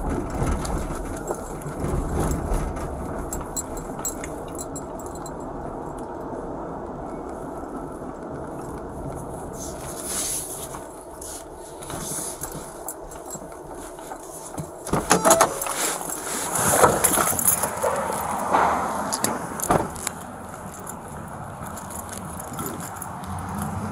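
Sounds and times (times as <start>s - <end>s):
car cabin rumble: 0.0s - 23.9s
car door opening: 14.6s - 20.2s.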